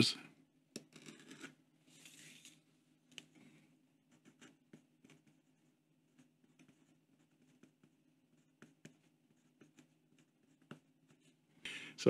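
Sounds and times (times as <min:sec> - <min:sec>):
pencil ticking on paper: 0:04.1 - 0:11.4.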